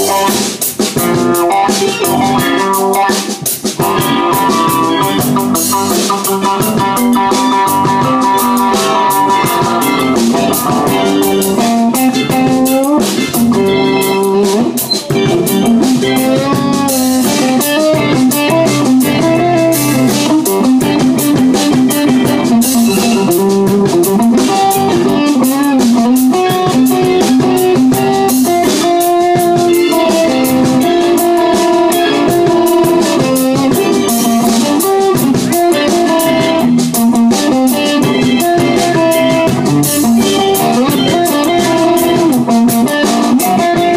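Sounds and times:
electric guitar: 0.0 - 43.9
live band playing: 0.0 - 43.9.

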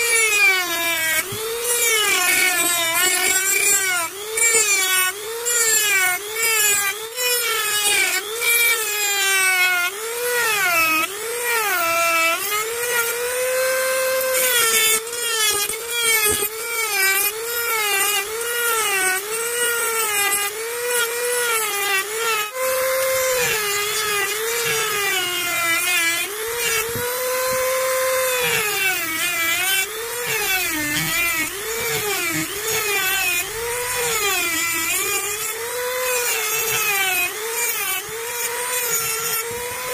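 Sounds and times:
rotary tool grinding whine: 0.0 - 39.9.

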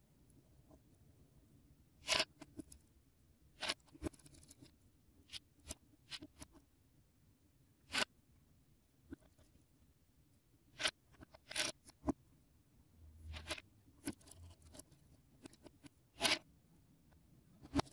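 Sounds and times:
plastic bricks clicking and scraping: 2.0 - 2.8, 10.8 - 12.2, 13.3 - 16.5, 17.6 - 17.9.

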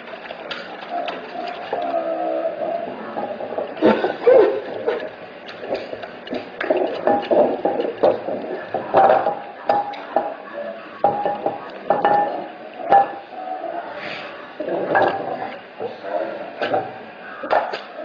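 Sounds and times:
bowl clattering on hard floor: 6.6 - 10.4, 11.0 - 13.2.

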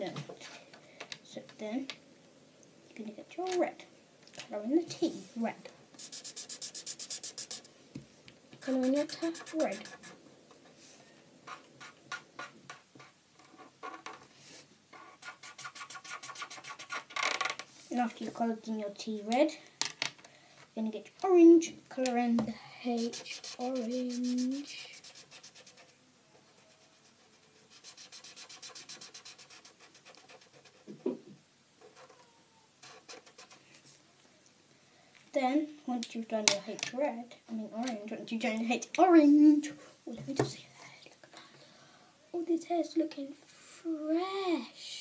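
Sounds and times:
felt-tip pen scratching on paper: 6.0 - 7.7, 8.6 - 10.2, 23.0 - 31.2, 32.8 - 33.6.

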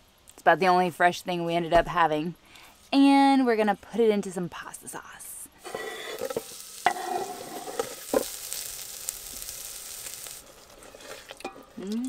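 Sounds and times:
onions scraped off cutting board: 5.6 - 8.7
onions sizzling in oil: 5.6 - 11.8.

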